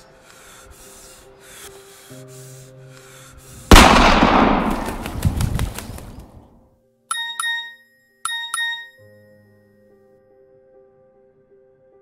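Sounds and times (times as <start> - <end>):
pistol shot echoing: 3.7 - 5.2
birds' wings flapping: 4.4 - 6.5
phone text alert chime: 7.1 - 9.4.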